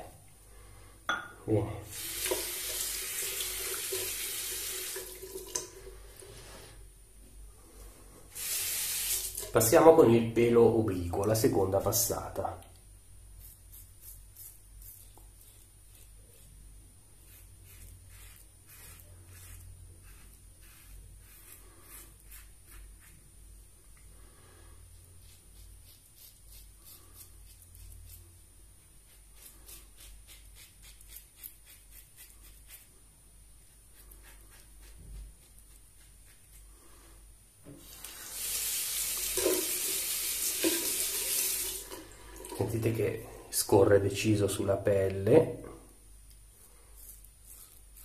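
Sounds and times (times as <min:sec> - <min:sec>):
tap running into sink: 0:02.2 - 0:05.8, 0:39.2 - 0:42.6
razor scraping stubble: 0:13.4 - 0:16.6, 0:17.2 - 0:23.2, 0:25.2 - 0:28.3, 0:29.0 - 0:32.9, 0:46.9 - 0:48.0.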